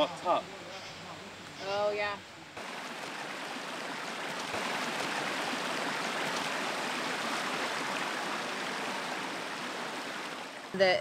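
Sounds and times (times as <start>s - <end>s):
stream rushing over rocks: 2.6s - 11.0s.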